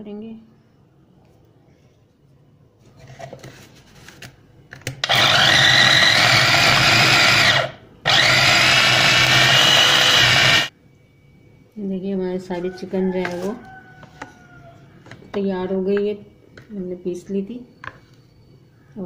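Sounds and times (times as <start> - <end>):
food chopper motor grinding: 5.0 - 10.7.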